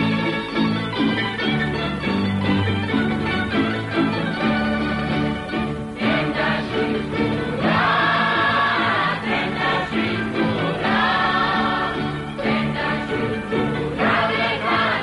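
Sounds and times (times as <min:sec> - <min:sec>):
instrumental accompaniment: 0:00.0 - 0:15.0
voices singing together: 0:05.9 - 0:15.0.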